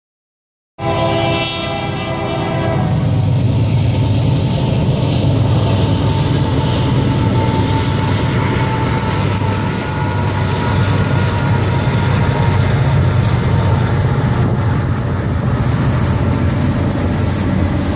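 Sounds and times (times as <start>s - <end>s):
locomotive air horn chord: 0.8s - 3.4s, 6.0s - 13.8s
diesel locomotives rumbling: 0.8s - 17.9s.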